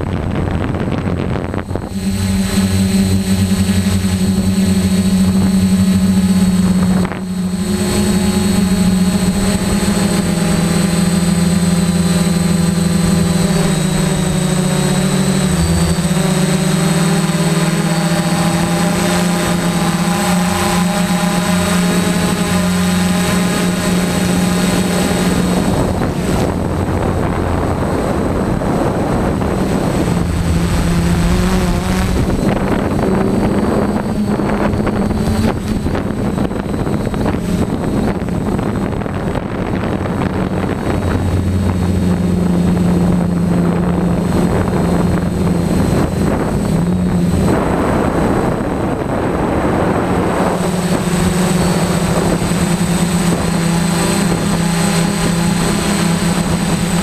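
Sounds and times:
quadcopter motors humming: 0.0 - 57.0
rushing noise: 5.7 - 43.3.

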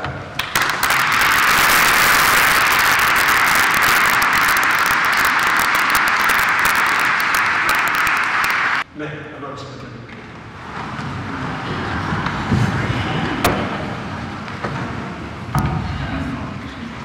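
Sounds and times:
congregation applauding: 0.4 - 8.9.

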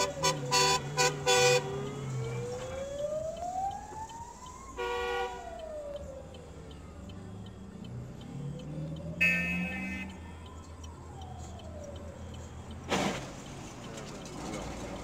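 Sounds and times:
fire truck siren wailing: 0.0 - 13.7
short siren blasts: 9.1 - 10.2.

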